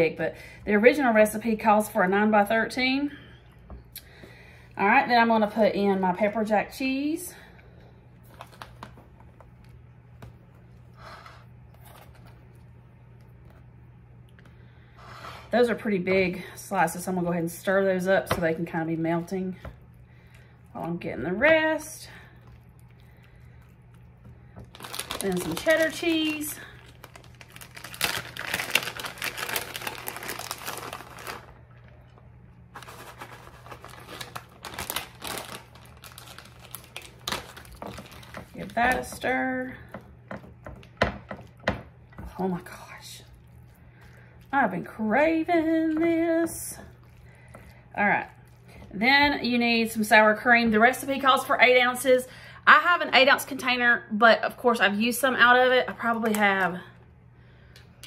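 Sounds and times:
steady low hum: 0.0s - 58.0s
plastic bag crinkling: 8.2s - 9.0s, 24.6s - 39.2s
cheese tearing rustle: 22.4s - 32.0s, 32.7s - 38.8s.

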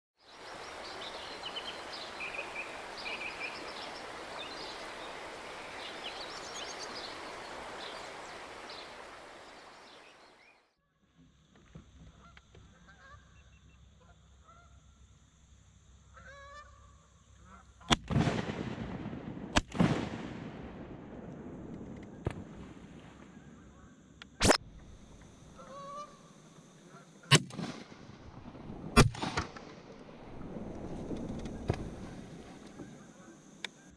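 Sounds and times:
small birds chirping: 0.2s - 10.6s
geese honking: 25.5s - 27.3s
shotgun blast: 29.0s - 29.8s.

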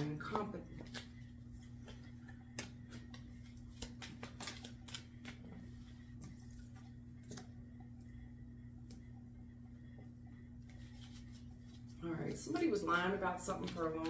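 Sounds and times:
cards clicking and rustling: 0.0s - 7.5s, 10.7s - 14.0s
steady low hum: 0.0s - 14.0s.

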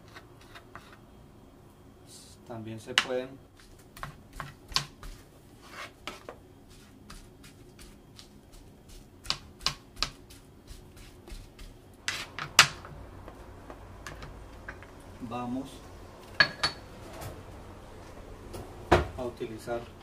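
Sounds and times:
knife chopping on plastic board: 4.0s - 5.2s, 9.2s - 12.8s.

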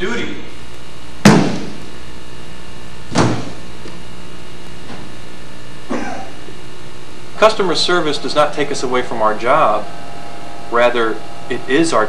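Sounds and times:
steady low hum: 0.0s - 12.0s
sharp thumps: 1.2s - 1.9s, 3.1s - 4.0s.

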